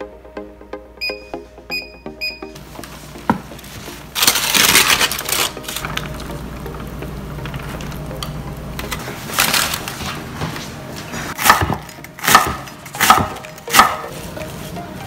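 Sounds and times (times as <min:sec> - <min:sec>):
knife cutting cabbage on wooden board: 0:11.4 - 0:14.1.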